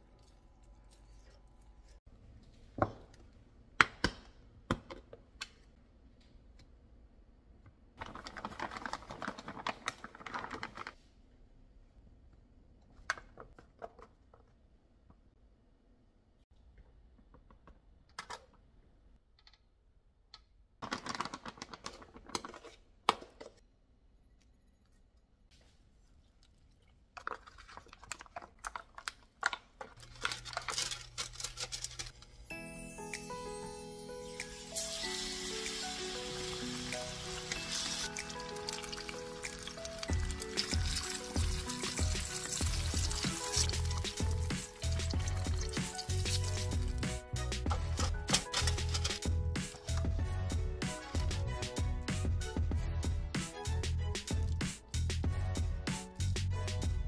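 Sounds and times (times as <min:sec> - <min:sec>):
parchment paper crinkling: 0:08.0 - 0:11.0, 0:20.8 - 0:22.8, 0:27.2 - 0:32.4, 0:36.1 - 0:47.1, 0:47.7 - 0:50.0
rustling and clattering food: 0:08.0 - 0:11.0, 0:25.6 - 0:32.4, 0:37.7 - 0:50.0
ice cubes clicking in metal tray: 0:37.3 - 0:47.0, 0:47.7 - 0:49.3.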